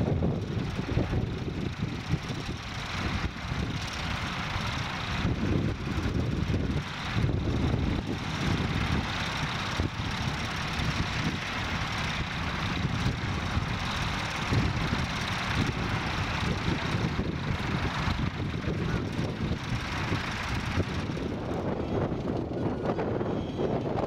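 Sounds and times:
tractor diesel engine under load: 0.0 - 24.0.

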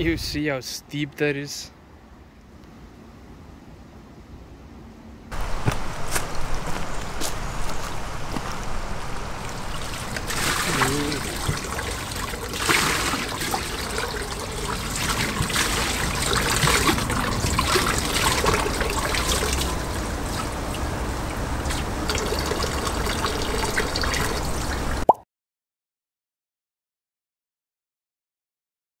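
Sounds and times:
water trickling and splashing on grate: 7.8 - 25.0.

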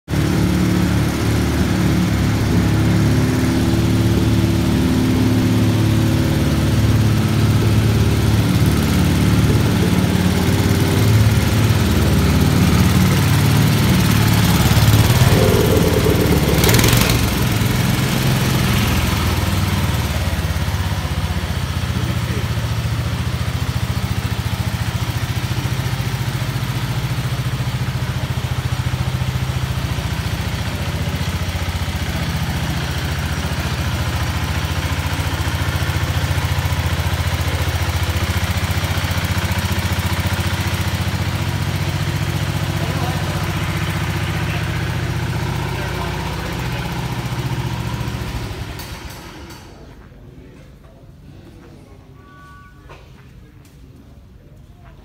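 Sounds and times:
garden tractor engine running: 0.3 - 21.1.

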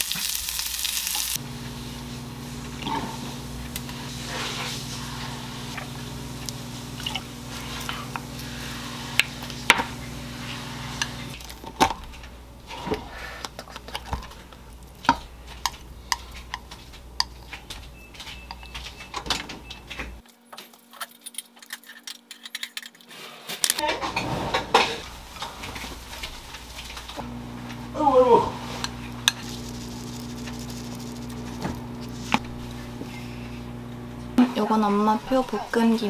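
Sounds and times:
spoon stirring in glass bowl: 15.0 - 19.1, 28.8 - 32.4
chopsticks scraping a plate: 28.6 - 32.4.

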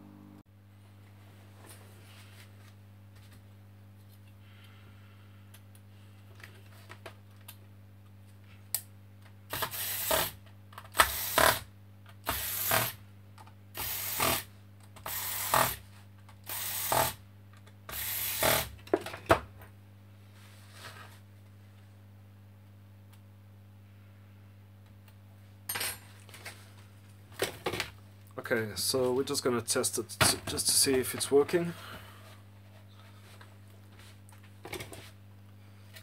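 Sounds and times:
electric screwdriver spinning: 9.5 - 11.6, 12.3 - 13.0, 13.8 - 15.8, 16.5 - 17.2, 17.9 - 18.7.

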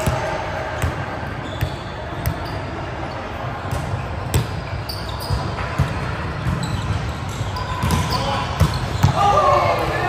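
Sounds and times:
murmur of players: 0.0 - 10.0
shoe squeaks: 1.4 - 3.2, 4.6 - 5.7, 6.4 - 9.3
volleyballs smacking and bouncing: 5.3 - 9.5.

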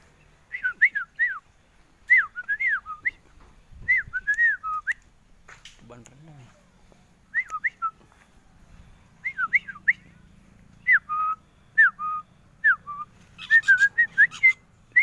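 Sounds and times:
person whistling short notes: 7.3 - 8.0.

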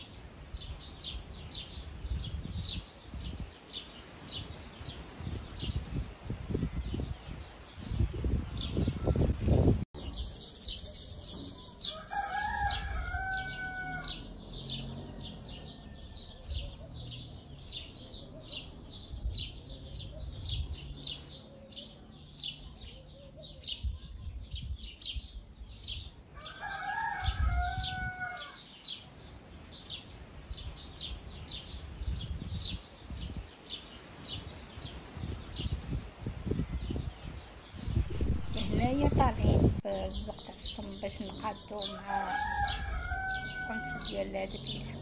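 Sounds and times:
rooster crowing: 11.9 - 16.5, 26.4 - 28.6, 42.0 - 44.2.

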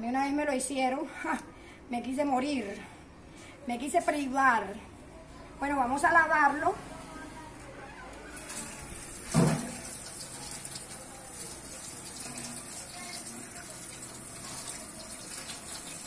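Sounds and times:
kitchen tap running and splashing: 8.4 - 16.0.

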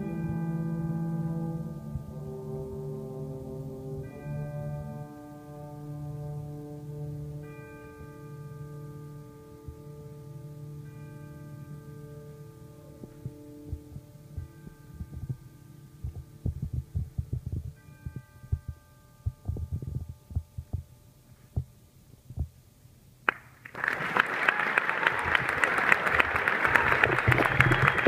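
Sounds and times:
concert band held notes: 0.0 - 17.8, 23.8 - 28.0
soft low thuds: 13.0 - 22.6
audience applause: 23.3 - 28.0.

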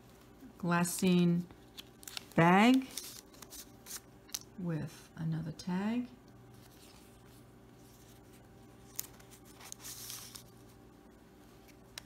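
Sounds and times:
low steady hum: 0.0 - 12.0
paper rustling: 1.5 - 4.1, 6.5 - 10.8.

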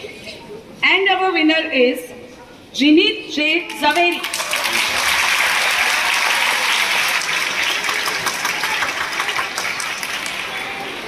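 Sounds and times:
crowd applauding: 3.9 - 11.0.

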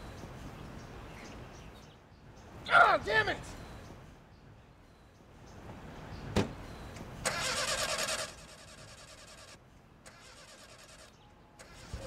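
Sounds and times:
car starter motor cranking: 7.2 - 9.4, 10.1 - 12.0.

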